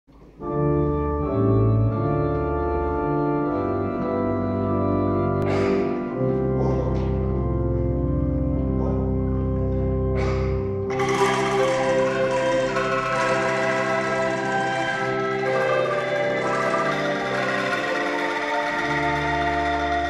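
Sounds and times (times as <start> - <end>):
organ keyboard chords: 0.1 - 20.0
rattling swells: 10.9 - 20.0.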